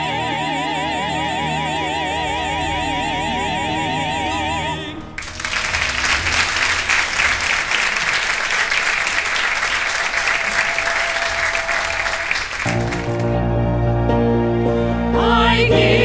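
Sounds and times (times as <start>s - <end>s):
music: 0.0s - 16.0s
crowd applauding: 5.0s - 13.5s.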